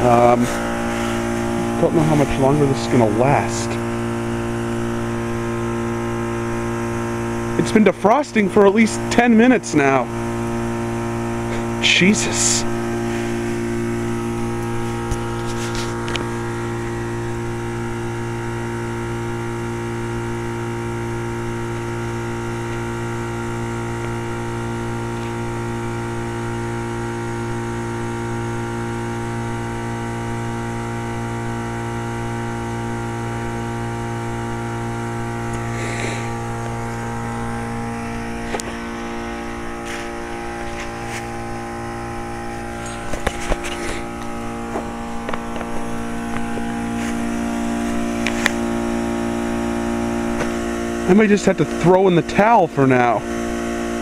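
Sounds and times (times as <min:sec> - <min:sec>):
heat pump compressor hum: 0:00.0 - 0:54.0
brief rustles and clicks: 0:42.8 - 0:47.2.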